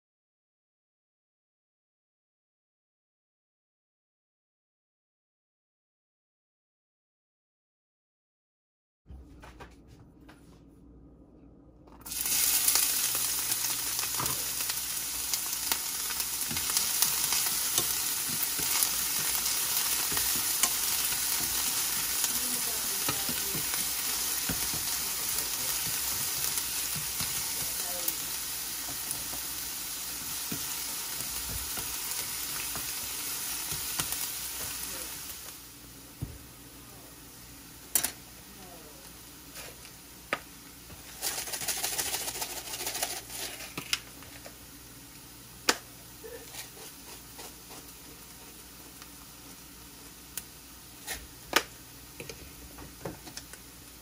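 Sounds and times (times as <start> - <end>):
garlic sizzling in hot oil: 12.0 - 54.0
wooden spatula scraping and tapping: 16.4 - 27.8, 28.8 - 33.0, 39.5 - 44.6, 46.4 - 48.6.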